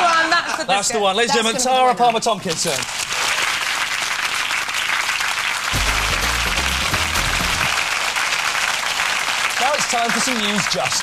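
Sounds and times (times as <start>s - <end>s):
studio audience applauding: 2.7s - 11.0s
deep bass music sting: 5.8s - 7.8s.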